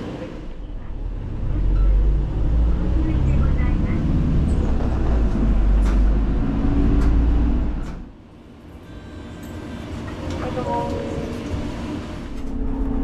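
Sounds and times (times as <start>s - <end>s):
bus engine and road rumble: 0.0s - 13.0s.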